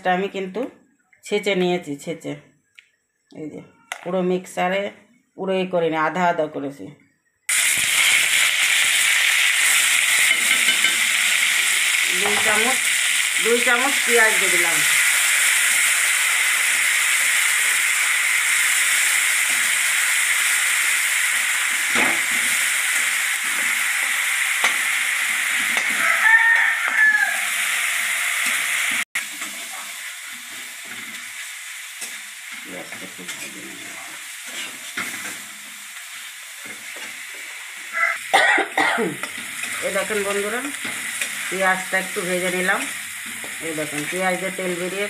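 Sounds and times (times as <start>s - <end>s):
onion sizzling in oil: 7.5s - 45.0s
spatula scraping a pan: 32.9s - 35.5s.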